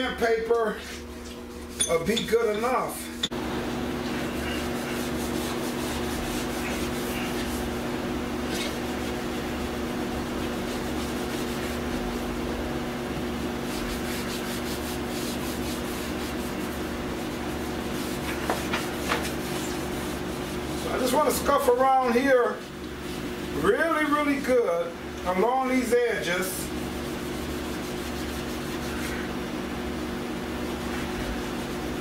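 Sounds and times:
steady low hum: 0:00.0 - 0:32.0
scuff pad rubbing painted surface: 0:04.0 - 0:07.8, 0:08.5 - 0:12.4, 0:13.4 - 0:21.5, 0:26.6 - 0:29.4, 0:30.6 - 0:32.0.

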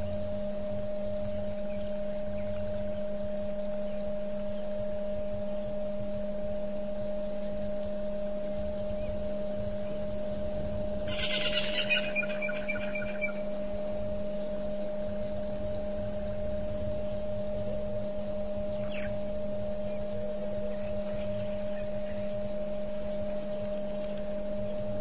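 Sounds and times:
low electrical hum: 0:00.0 - 0:25.0
bird call whistled note: 0:11.1 - 0:13.4.

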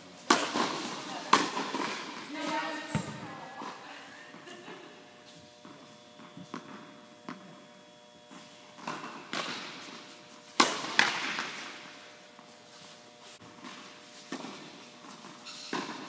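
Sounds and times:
steady hum: 0:00.0 - 0:16.0
tennis ball hits and bounces: 0:00.2 - 0:03.7, 0:08.3 - 0:12.0, 0:13.6 - 0:16.0.

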